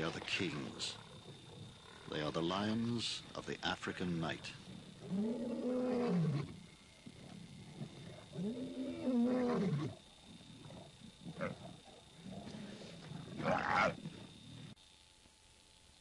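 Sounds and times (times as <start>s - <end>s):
lion roaring: 4.6s - 6.6s, 7.2s - 14.7s.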